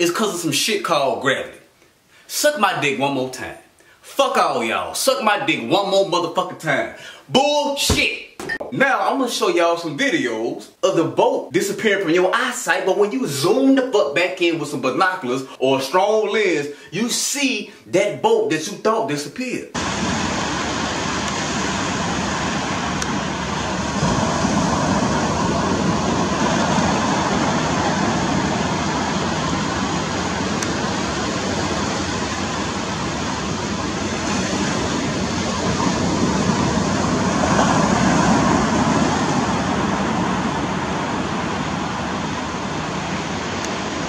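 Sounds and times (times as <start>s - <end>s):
surf at shore: 19.8s - 44.0s
wind on microphone: 19.8s - 44.0s.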